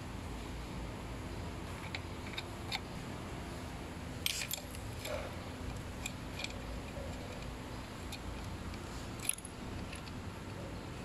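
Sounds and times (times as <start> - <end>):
faint hum: 0.0 - 11.0
small metal parts clicking: 1.6 - 3.0, 4.2 - 10.6.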